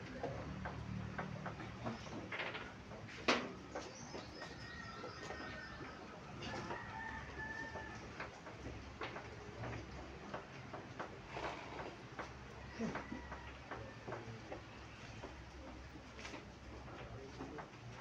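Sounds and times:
rooster crowing: 4.7 - 8.1, 12.6 - 14.2.

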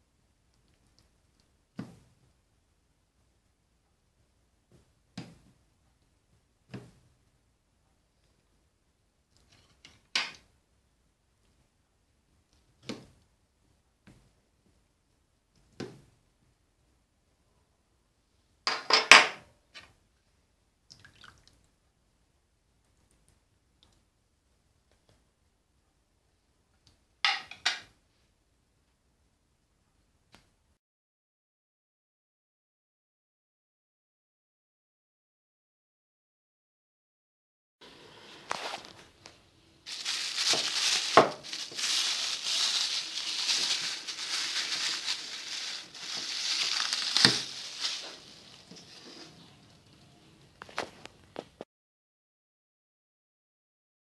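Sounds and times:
faint drips: 20.9 - 21.7
cling film crinkling: 38.5 - 50.0.

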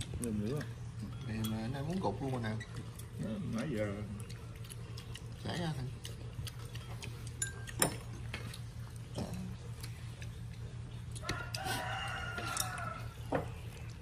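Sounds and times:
rooster crowing: 11.2 - 13.5.

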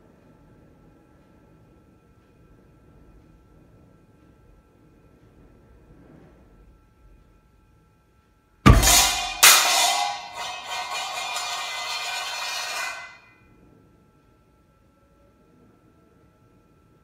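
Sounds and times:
explosion bang in tin can: 8.7 - 13.2
metallic clattering and ringing: 8.7 - 13.3.

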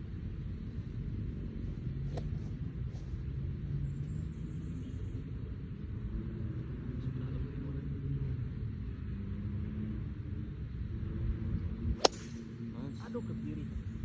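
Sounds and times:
faint wavering hum: 0.0 - 14.0
low outdoor rumble: 0.0 - 14.0.

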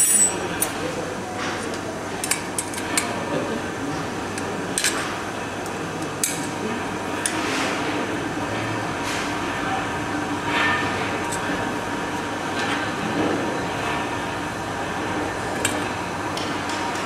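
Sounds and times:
metal spanners clinking: 0.0 - 0.8
low background hum: 0.0 - 17.0.

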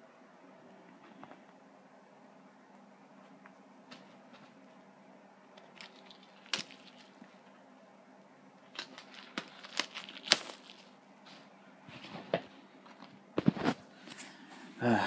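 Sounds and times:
packaging crinkling: 5.6 - 7.3, 8.7 - 11.0.

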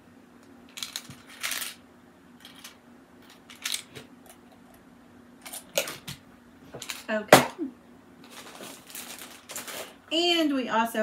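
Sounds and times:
plastic clips rattling in a tin: 2.4 - 3.9.

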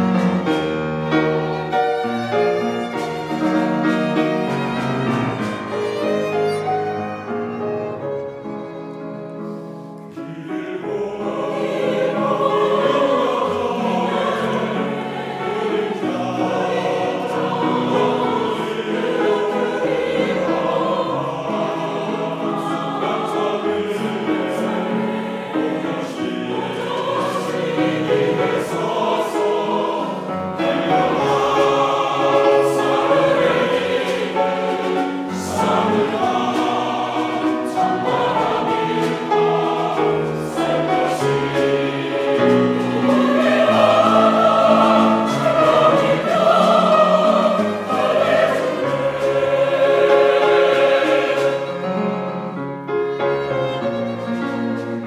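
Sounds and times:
mixed choir singing: 0.0 - 55.0
piano and strings: 0.0 - 55.0.

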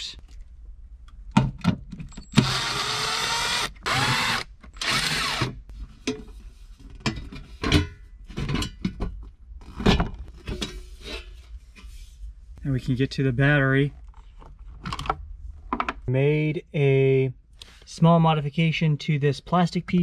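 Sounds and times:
cordless driver running: 2.4 - 5.5.

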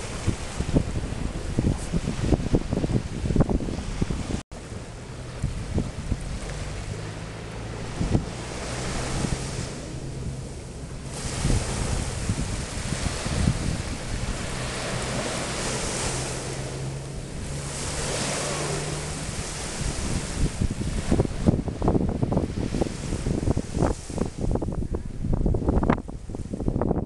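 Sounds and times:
small waves breaking on sand: 0.0 - 26.7
wind buffeting microphone: 0.0 - 27.0.

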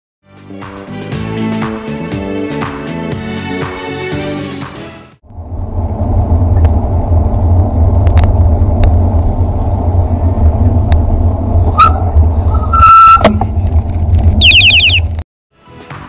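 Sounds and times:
passing traffic: 5.2 - 15.2
wind buffeting microphone: 5.3 - 14.5.

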